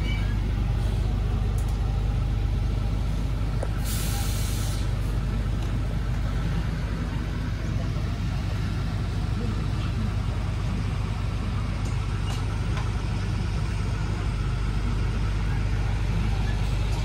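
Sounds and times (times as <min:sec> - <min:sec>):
air hiss: 0:03.8 - 0:05.0.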